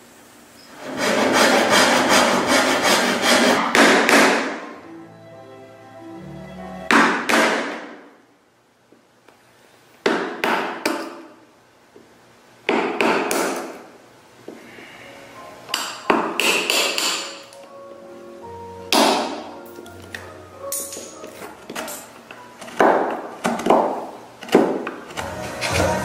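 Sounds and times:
hammer striking a chisel: 3.2s - 4.7s, 6.9s - 8.0s, 15.7s - 17.4s.

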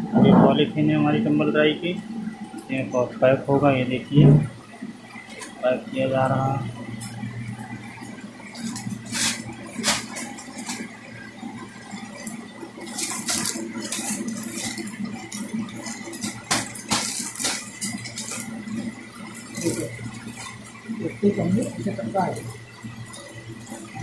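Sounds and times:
steady low hum: 0.0s - 24.0s
plastic bag crinkling: 8.5s - 11.0s, 11.9s - 20.7s.

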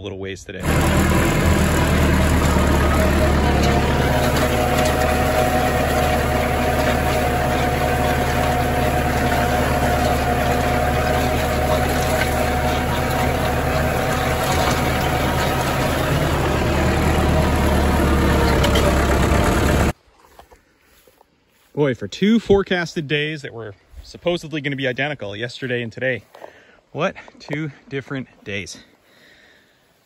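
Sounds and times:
tractor engine running: 0.6s - 20.0s.

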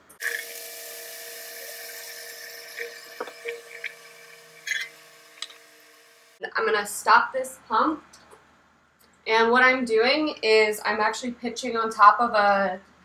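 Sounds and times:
pump humming: 0.0s - 6.4s.

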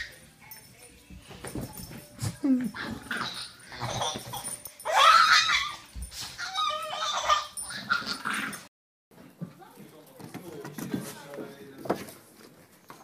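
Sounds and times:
small dog whining: 2.2s - 8.6s
baby squealing and laughing: 3.2s - 8.2s.

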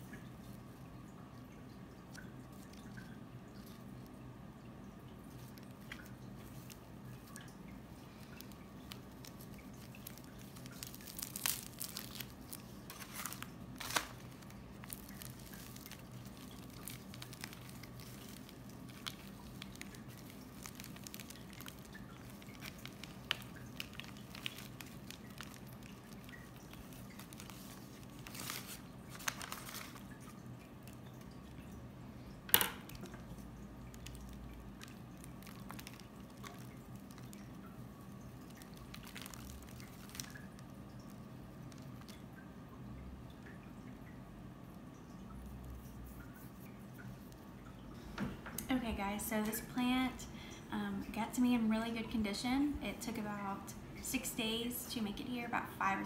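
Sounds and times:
faint steady low hum: 0.0s - 56.0s
moss being handled: 5.2s - 31.4s, 32.9s - 42.2s, 45.4s - 48.2s
newspaper crinkling and rustling: 5.3s - 31.3s, 33.9s - 42.2s.

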